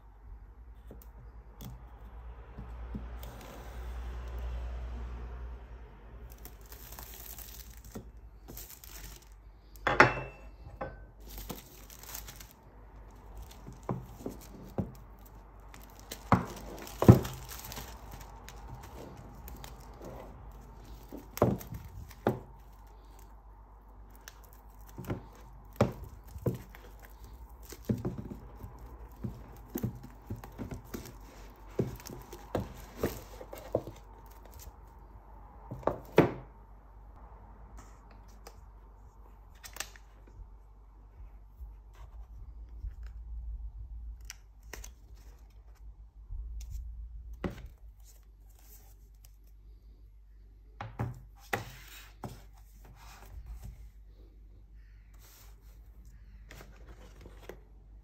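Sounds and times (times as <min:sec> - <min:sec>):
shrink wrap tearing and crinkling: 0:06.2 - 0:09.8, 0:11.2 - 0:23.3, 0:23.9 - 0:34.8.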